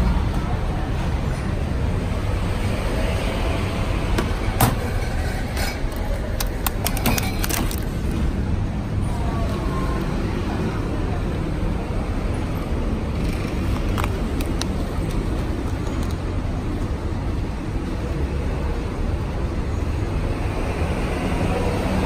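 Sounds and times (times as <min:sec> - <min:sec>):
plastic packaging clicks and knocks: 0:05.9 - 0:08.0.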